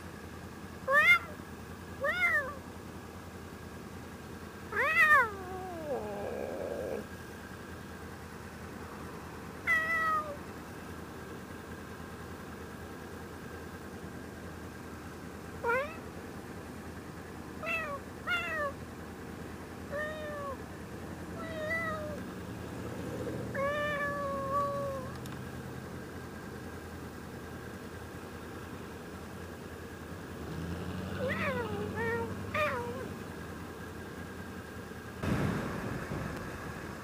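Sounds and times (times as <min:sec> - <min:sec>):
motorcycle engine idling: 0:00.0 - 0:30.4, 0:31.2 - 0:37.0
cat meowing: 0:00.9 - 0:01.4, 0:02.0 - 0:02.6, 0:04.7 - 0:07.1, 0:09.7 - 0:10.4, 0:15.6 - 0:16.0, 0:17.6 - 0:18.8, 0:19.9 - 0:20.6, 0:21.4 - 0:22.2, 0:23.5 - 0:25.1, 0:31.2 - 0:33.1.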